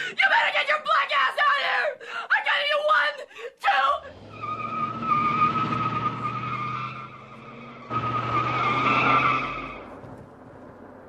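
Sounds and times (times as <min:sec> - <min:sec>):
car driving off: 0:04.0 - 0:11.0
car tyres squealing: 0:04.1 - 0:10.8.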